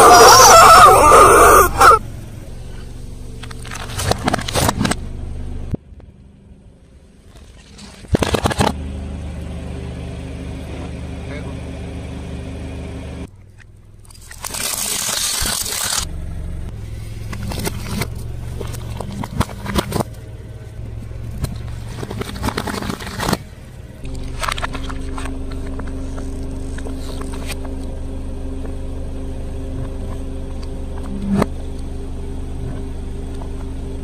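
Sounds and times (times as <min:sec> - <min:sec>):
car engine running low: 0:00.0 - 0:34.0
plastic cracking and crunching: 0:14.1 - 0:16.1.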